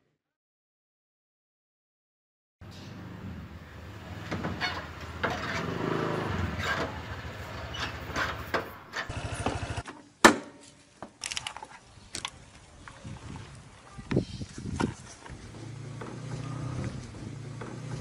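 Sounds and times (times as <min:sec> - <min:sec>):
motor scooter engine running: 0:04.9 - 0:09.8, 0:15.4 - 0:18.0.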